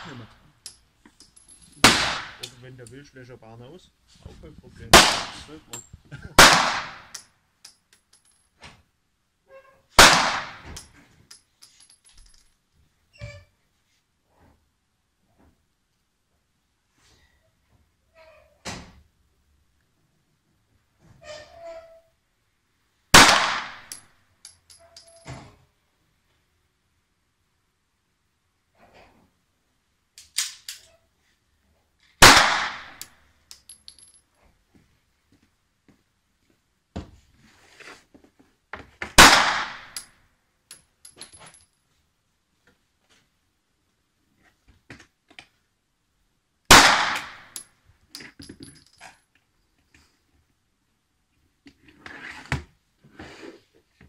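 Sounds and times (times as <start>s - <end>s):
pistol shot: 1.8s - 2.5s, 4.9s - 5.5s, 6.4s - 7.2s, 10.0s - 10.7s, 23.2s - 24.0s, 32.2s - 33.0s, 39.2s - 40.0s, 46.7s - 47.5s.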